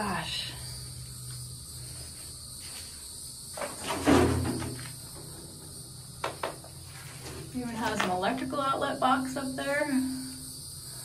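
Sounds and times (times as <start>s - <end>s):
insects chorus: 0.0s - 11.0s.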